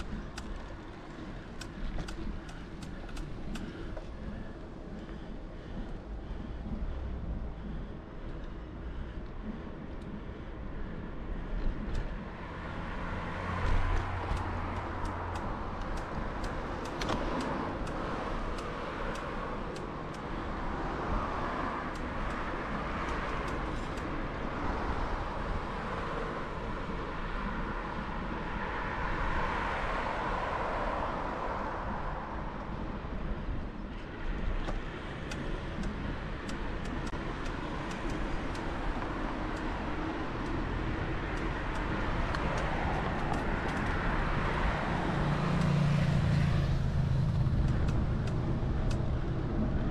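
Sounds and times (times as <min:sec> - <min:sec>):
light clicks: 0:00.0 - 0:04.1, 0:13.6 - 0:20.3, 0:34.6 - 0:40.6, 0:41.2 - 0:44.6
cars going by: 0:00.0 - 0:49.9.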